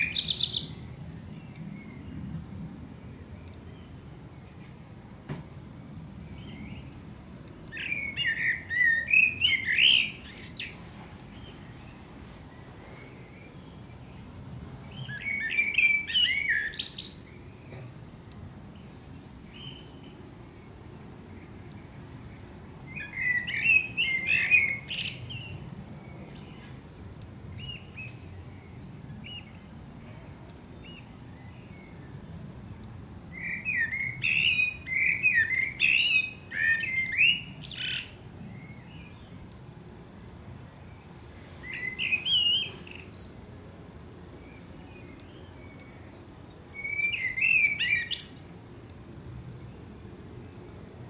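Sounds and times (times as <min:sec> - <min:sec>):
blackbird singing: 0:00.0 - 0:02.2, 0:07.7 - 0:12.1, 0:13.0 - 0:17.9, 0:19.5 - 0:20.2, 0:22.9 - 0:26.7, 0:33.3 - 0:39.4, 0:41.6 - 0:43.6, 0:44.4 - 0:49.0.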